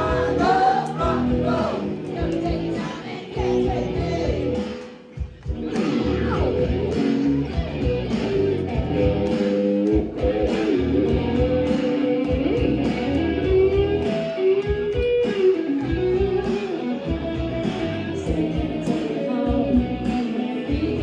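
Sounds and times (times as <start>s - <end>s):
bass guitar: 0.0s - 21.0s
drums: 0.0s - 21.0s
electric guitar lead: 0.0s - 21.0s.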